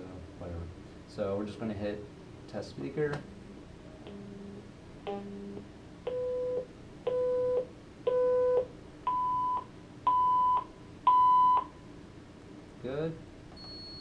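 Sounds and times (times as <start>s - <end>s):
monitor beeps: 6.1s - 11.7s, 13.6s - 14.0s.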